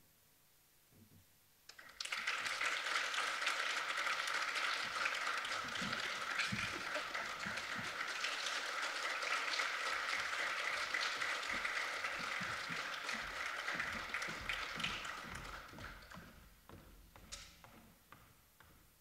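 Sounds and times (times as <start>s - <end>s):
audience applauding: 1.7s - 16.4s.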